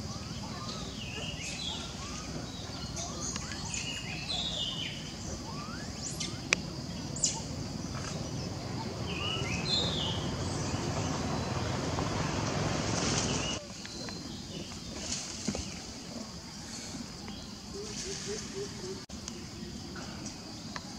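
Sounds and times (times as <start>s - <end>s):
sharp bird chirps: 0.0s - 11.7s
high whistled bird calls: 0.0s - 15.8s.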